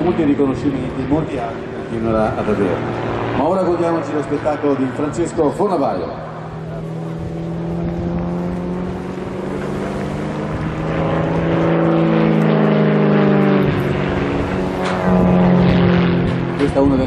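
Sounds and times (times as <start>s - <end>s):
plane piston engine and propeller: 0.0s - 17.0s.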